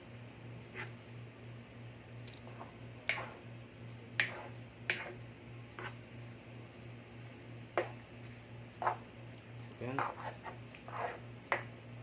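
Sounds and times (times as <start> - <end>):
steady low hum: 0.0 - 12.0
spoon stirring thick sauce: 2.2 - 3.5, 4.1 - 6.0, 7.3 - 11.8.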